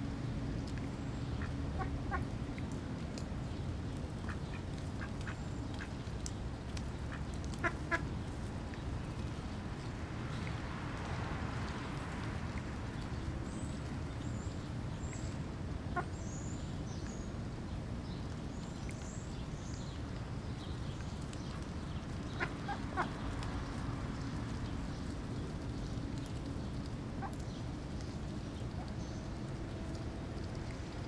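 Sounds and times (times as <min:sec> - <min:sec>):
ducks calling softly: 0:01.3 - 0:02.3, 0:04.2 - 0:06.0, 0:07.1 - 0:08.0, 0:15.9 - 0:16.2, 0:22.2 - 0:23.4.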